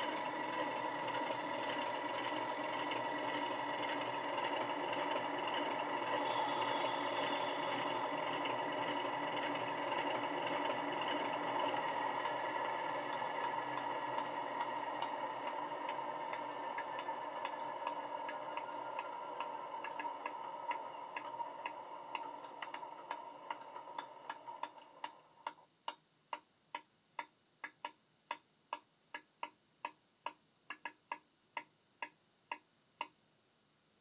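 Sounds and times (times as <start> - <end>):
diesel engine sound from small speaker: 0.0 - 25.5.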